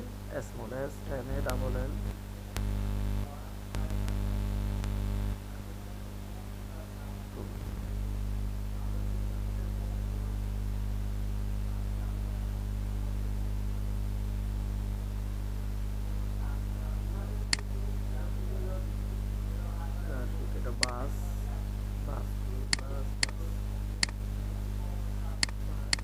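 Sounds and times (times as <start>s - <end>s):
faint voices: 0.0s - 10.7s, 16.0s - 26.0s
electrical mains hum: 0.0s - 26.0s
mouse click: 25.4s - 26.0s.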